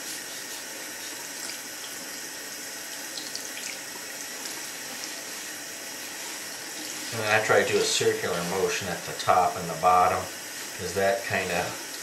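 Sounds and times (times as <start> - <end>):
water splashing on filter being scrubbed: 0.0 - 12.0.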